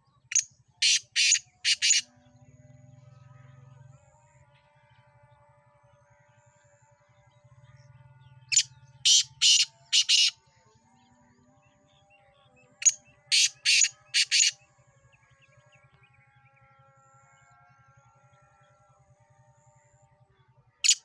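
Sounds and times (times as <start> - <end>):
bird calling harsh phrases: 0.3 - 2.0, 8.5 - 10.4, 13.3 - 14.5.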